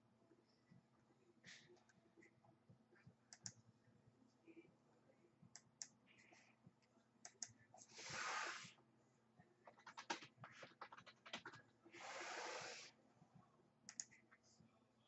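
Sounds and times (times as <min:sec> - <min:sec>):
computer mouse clicks: 0:03.3 - 0:03.6, 0:07.2 - 0:08.7, 0:13.9 - 0:14.2.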